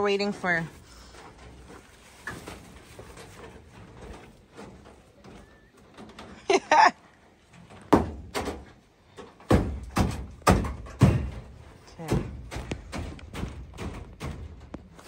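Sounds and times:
loud bangs and thuds: 7.8 - 8.7, 9.4 - 14.8.

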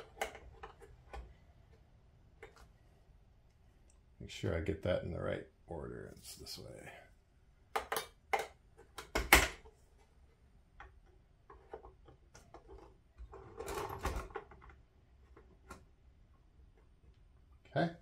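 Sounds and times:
plastic clicks and knocks: 0.0 - 1.4, 7.7 - 9.8.

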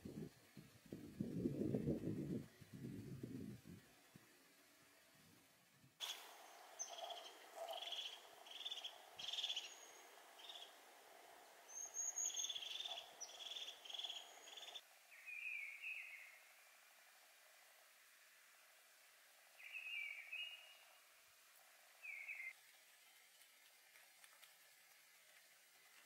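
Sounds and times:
songbird singing high notes: 6.0 - 10.8, 11.7 - 16.4, 19.6 - 20.8.

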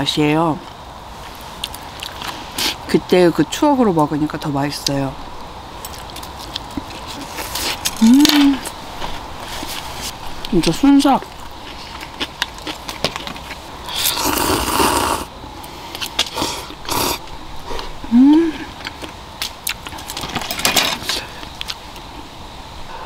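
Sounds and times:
person slurping noodles: 13.8 - 15.3, 16.3 - 18.6
person humming mm: 18.0 - 18.7.

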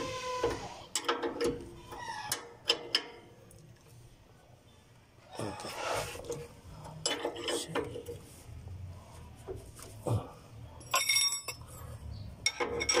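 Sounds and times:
metal tools clinking: 10.8 - 13.0.

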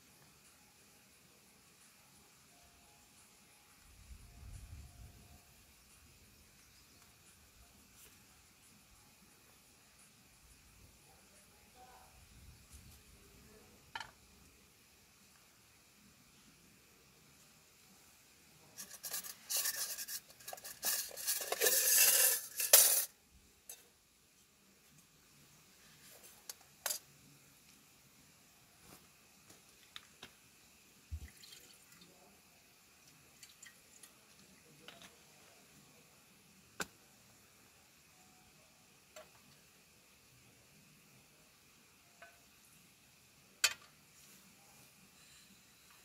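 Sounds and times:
handling scraping and rustling: 18.7 - 23.1.

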